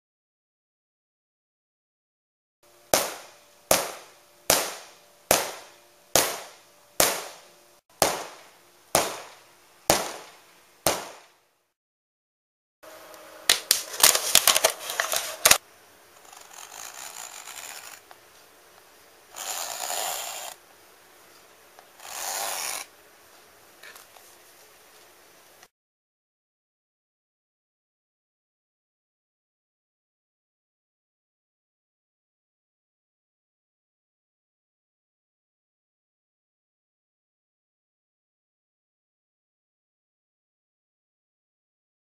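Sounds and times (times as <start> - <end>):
hammer striking inflatable boat tube: 3.0 - 7.4.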